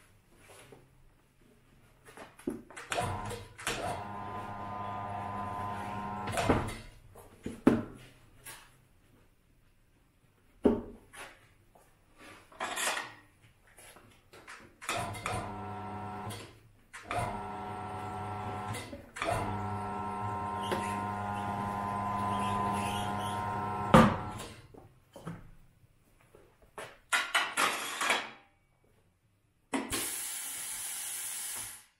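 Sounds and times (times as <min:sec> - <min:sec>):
tyre changer motor humming: 0:03.9 - 0:06.4, 0:17.1 - 0:24.5.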